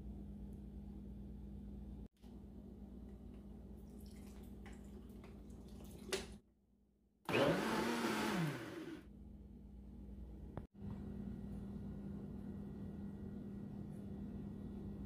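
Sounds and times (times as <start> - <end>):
blender motor whining: 7.3 - 9.1.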